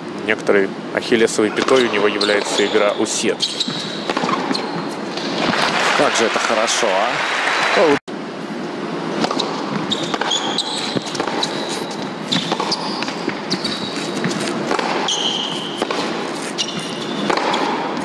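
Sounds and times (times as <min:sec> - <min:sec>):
crowd and hall background: 0:00.0 - 0:10.2
racquets striking tennis ball: 0:01.5 - 0:05.8, 0:09.2 - 0:18.0
sneaker squeaks on court: 0:01.6 - 0:05.6, 0:09.3 - 0:17.9.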